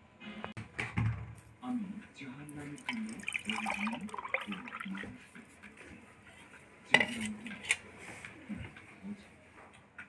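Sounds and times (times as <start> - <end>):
liquid pouring into a mug: 2.6 - 5.2.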